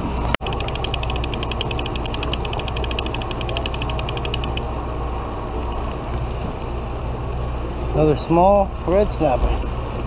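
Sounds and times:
fishing reel clicking: 0.4s - 4.7s.

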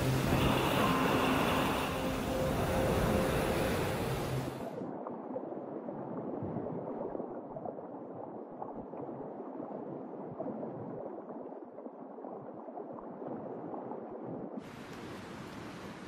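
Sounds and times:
underwater water rush: 0.0s - 5.3s.

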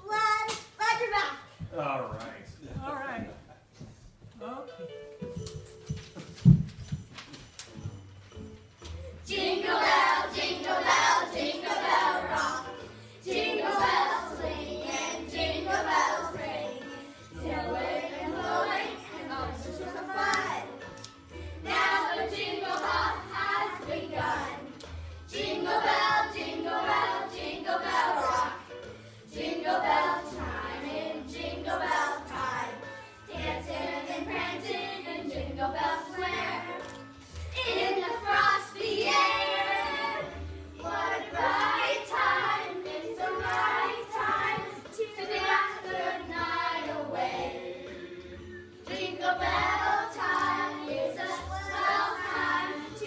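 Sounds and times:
children singing in chorus: 9.2s - 20.8s, 48.9s - 53.0s.

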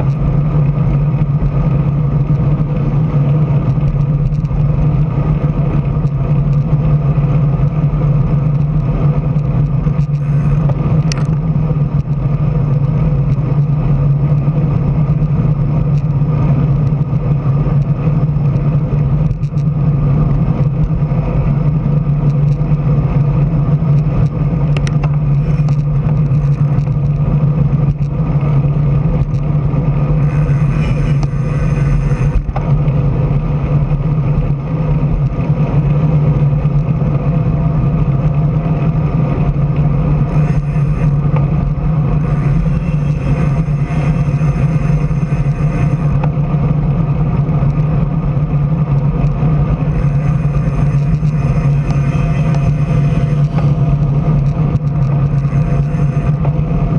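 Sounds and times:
car engine droning: 0.0s - 56.9s
wind and road noise: 0.0s - 56.9s
cars passing: 30.1s - 33.4s, 40.1s - 46.8s, 49.5s - 56.8s.

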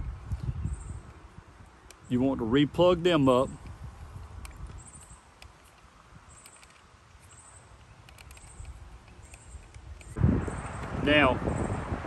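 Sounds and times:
low wind rumble: 0.0s - 7.2s, 7.8s - 12.0s
connector clicks and handling: 4.4s - 10.2s.

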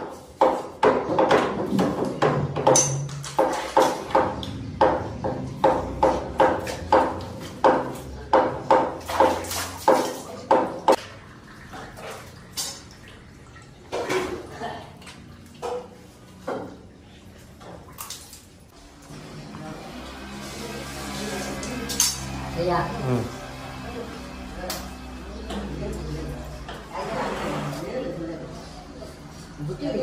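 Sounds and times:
wet knocks and clinks: 1.3s - 11.0s
wet rhythmic slapping: 3.2s - 11.2s.

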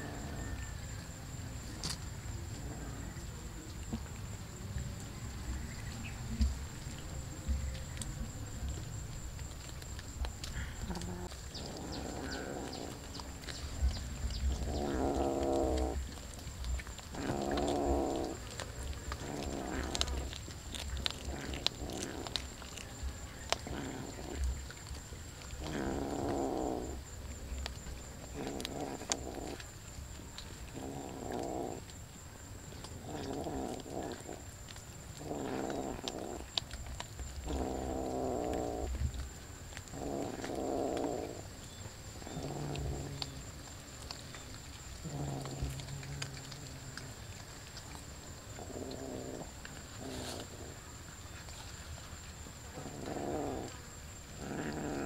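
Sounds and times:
cat growling: 0.0s - 0.7s, 2.5s - 3.2s, 10.4s - 27.0s, 28.2s - 29.6s, 30.7s - 31.9s, 32.9s - 34.5s, 35.1s - 36.6s, 37.4s - 39.2s, 39.8s - 41.5s, 42.2s - 44.2s, 45.0s - 50.8s, 52.7s - 55.0s.

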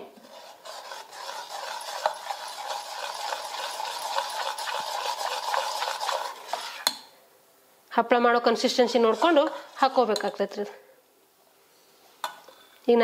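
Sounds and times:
wet swishing of stirring: 0.0s - 7.1s, 8.7s - 10.6s.

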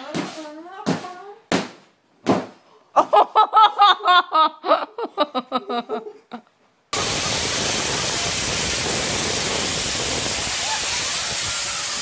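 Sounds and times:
loud steady hiss: 7.0s - 12.0s.

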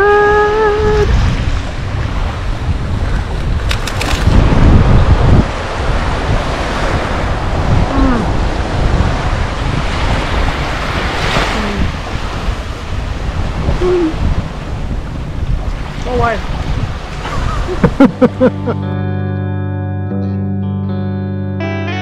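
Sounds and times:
wind buffeting microphone: 0.0s - 18.9s
small waves washing onto sand: 0.4s - 18.6s
background music chords: 18.1s - 22.0s.

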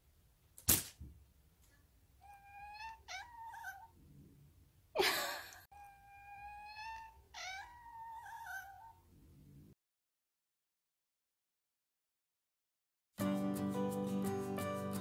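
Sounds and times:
cat chirping: 2.2s - 3.9s, 5.8s - 9.0s
cat yawning: 5.8s - 8.9s.

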